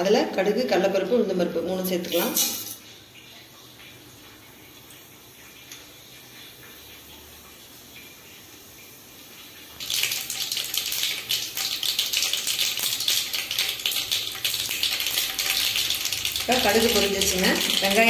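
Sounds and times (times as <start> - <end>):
hot oil hissing: 9.8 - 18.0.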